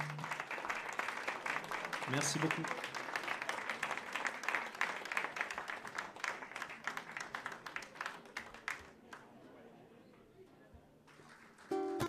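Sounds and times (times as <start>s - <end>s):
audience applauding: 0.0s - 9.2s, 11.1s - 12.0s.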